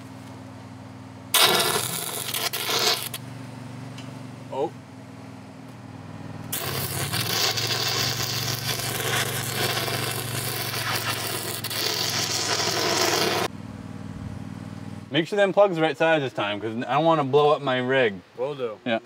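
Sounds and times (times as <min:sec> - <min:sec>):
steady low hum: 0:00.0 - 0:19.0
welding arc crackling and sizzling: 0:01.3 - 0:03.2, 0:06.5 - 0:13.5.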